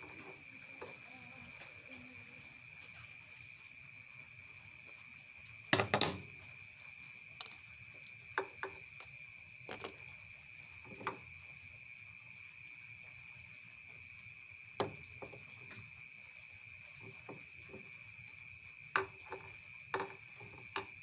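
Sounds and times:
hard plastic parts knocking: 5.8 - 6.2, 19.0 - 20.9.

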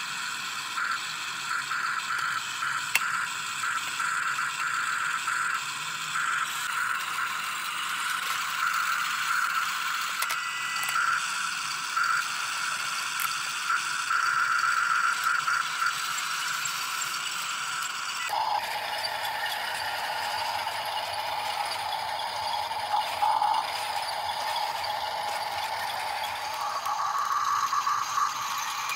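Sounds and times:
toy excavator motors whirring: 0.0 - 28.9.

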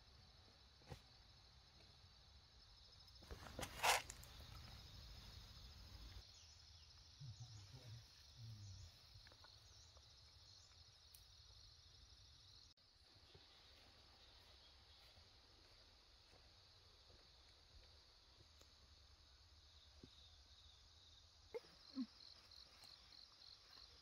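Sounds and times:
high-pitched insect chorus: 0.0 - 24.0.

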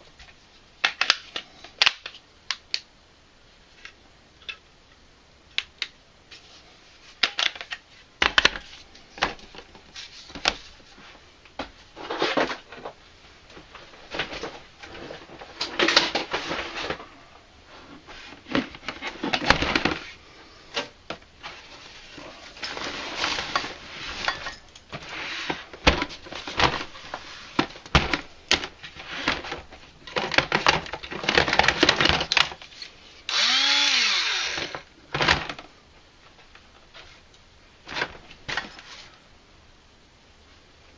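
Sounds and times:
cordless drill motor whirring: 33.3 - 34.8.

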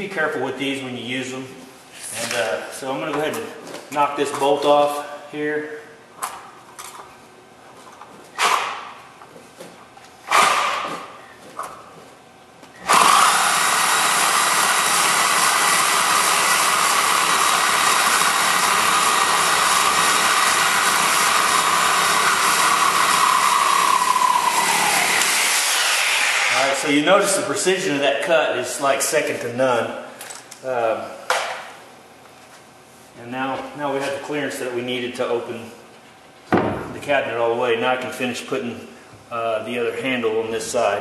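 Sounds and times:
reciprocating saw cutting metal: 12.9 - 26.8.

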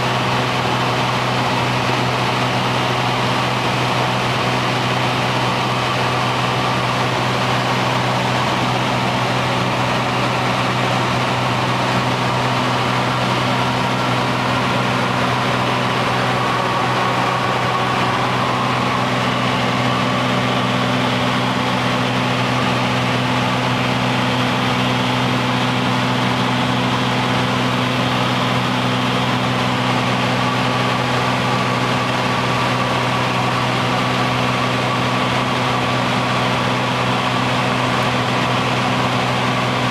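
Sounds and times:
airplane engine drone in cabin: 0.0 - 39.9.

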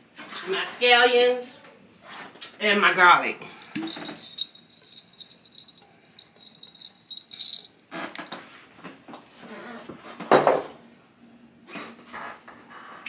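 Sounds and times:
jars and utensils clinking: 3.6 - 7.8.

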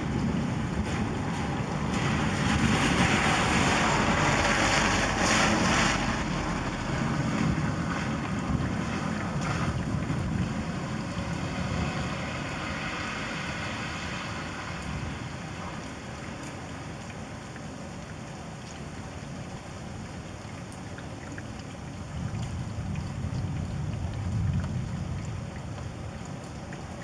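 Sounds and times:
thunder rumbling: 0.0 - 13.6.

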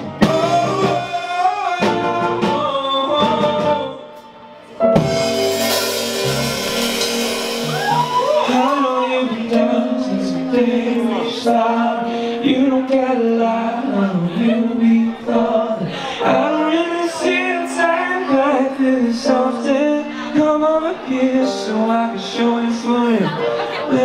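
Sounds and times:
bass guitar: 0.0 - 4.0, 4.8 - 15.3
man singing lead vocal: 0.0 - 4.4, 8.2 - 24.0
drums: 0.0 - 10.4
keyboard chords: 0.0 - 24.0.

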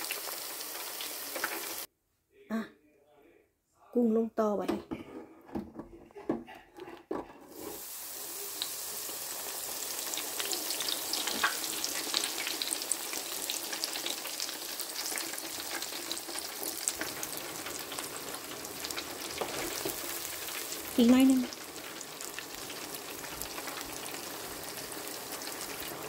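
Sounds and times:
oil sizzling with crackling pops: 0.0 - 1.9, 7.5 - 26.0.

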